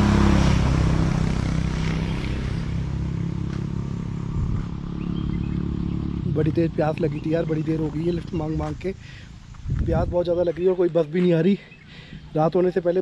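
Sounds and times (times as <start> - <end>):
vehicle engine passing: 0.0 - 8.9.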